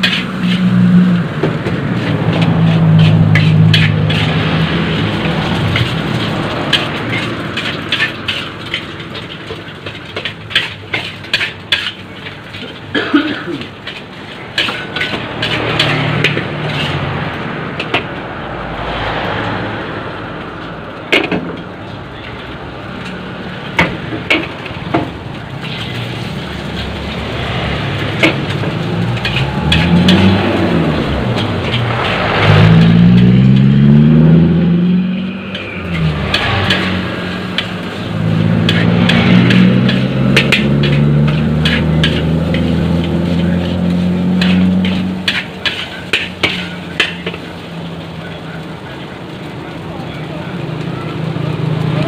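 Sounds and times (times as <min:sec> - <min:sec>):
metal spatula scraping a wok: 0:00.0 - 0:12.9, 0:13.5 - 0:18.2, 0:25.5 - 0:34.4, 0:35.0 - 0:48.1
hiss of frying: 0:00.0 - 0:52.0
motor vehicle engine: 0:00.0 - 0:52.0.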